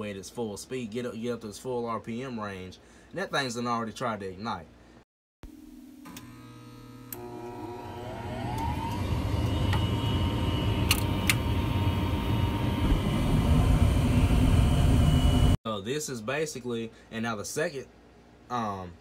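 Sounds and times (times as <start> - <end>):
furnace blower motor whine: 6.0 - 15.6
sharp clicks: 10.8 - 11.4.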